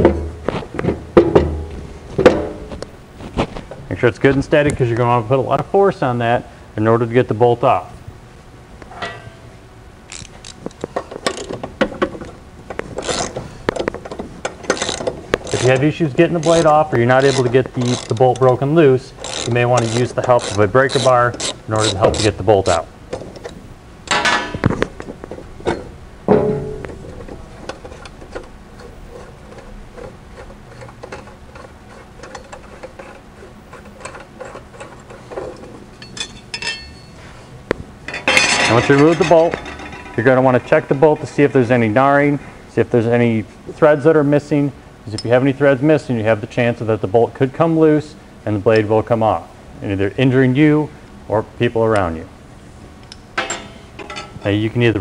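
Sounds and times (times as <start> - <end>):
hand ratchet clicking: 13.0 - 18.4, 19.2 - 22.3
quick ratchet clicks: 14.7 - 15.7, 16.4 - 18.3.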